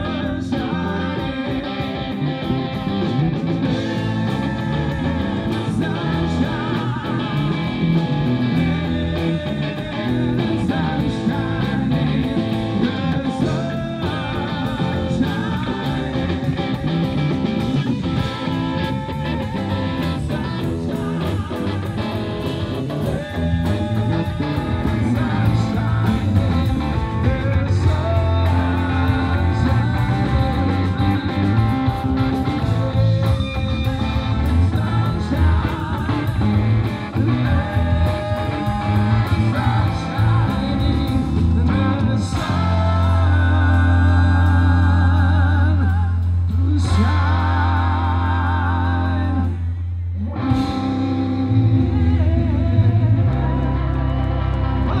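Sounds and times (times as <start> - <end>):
bass guitar: 0.0 - 55.0
drums: 0.0 - 55.0
electric guitar: 0.0 - 55.0
person singing: 0.0 - 55.0.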